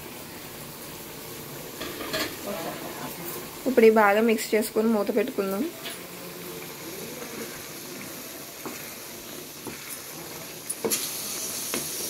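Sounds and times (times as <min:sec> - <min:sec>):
curry bubbling in a pan: 0:00.0 - 0:12.0
spoon stirring: 0:07.1 - 0:11.1.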